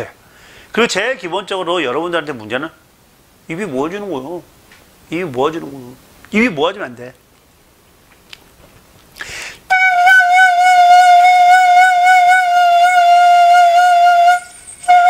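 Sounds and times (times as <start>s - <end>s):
breath rush: 9.2s - 9.7s
flute note: 9.7s - 15.0s.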